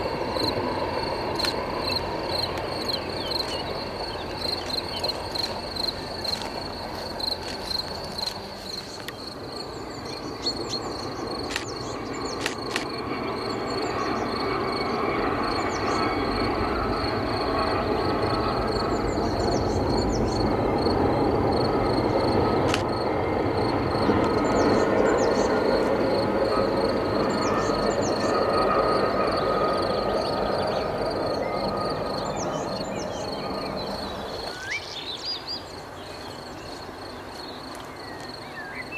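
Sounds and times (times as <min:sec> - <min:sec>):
train wheels rumbling: 0:00.0 - 0:34.9
crickets chirping: 0:00.0 - 0:38.9
birds chirping: 0:01.2 - 0:14.4, 0:24.3 - 0:25.7, 0:29.4 - 0:38.9.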